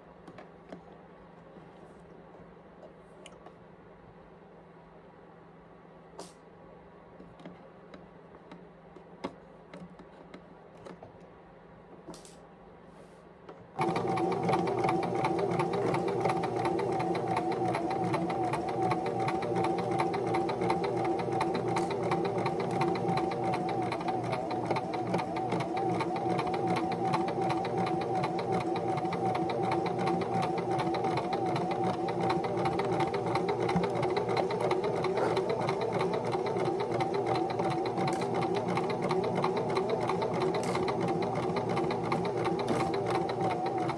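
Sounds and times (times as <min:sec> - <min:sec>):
sewing machine stitching: 0:13.8 - 0:43.9.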